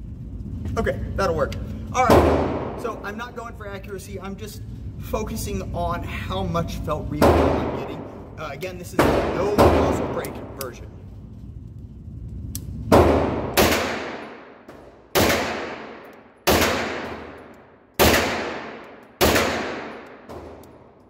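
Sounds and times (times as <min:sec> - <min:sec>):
gunshots echoing indoors: 0:02.0 - 0:03.1, 0:07.1 - 0:11.1, 0:12.6 - 0:21.0.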